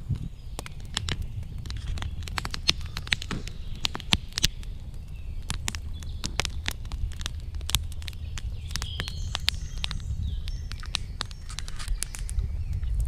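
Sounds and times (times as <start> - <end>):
campfire crackling and popping: 0.0 - 13.0
low fire rumble: 0.0 - 13.0.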